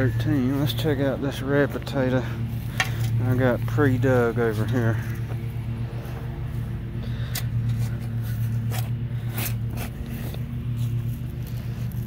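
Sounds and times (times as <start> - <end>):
low hum: 0.0 - 12.0
shovel scraping stony soil: 7.2 - 12.0.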